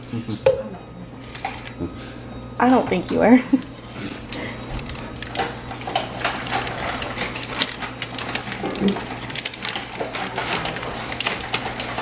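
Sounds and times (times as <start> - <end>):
paper wrappers crinkling: 3.6 - 12.0.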